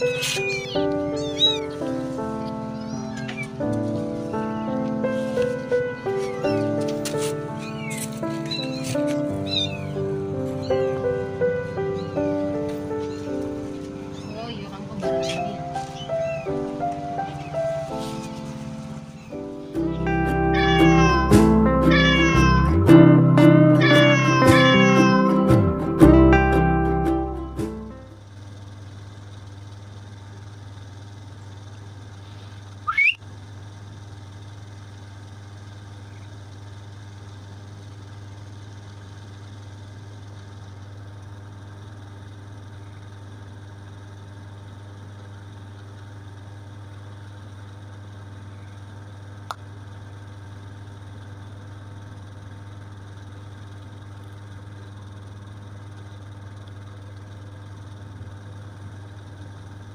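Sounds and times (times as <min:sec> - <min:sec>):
loud rising chirp: 0:00.0 - 0:25.5, 0:32.8 - 0:33.2
low machine hum: 0:00.0 - 0:59.9.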